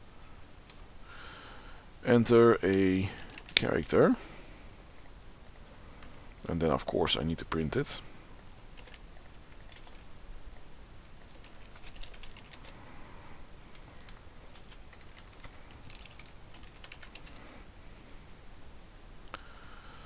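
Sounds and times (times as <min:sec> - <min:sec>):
typing on computer keyboard: 0:08.8 - 0:10.0, 0:11.2 - 0:12.8, 0:14.5 - 0:17.4.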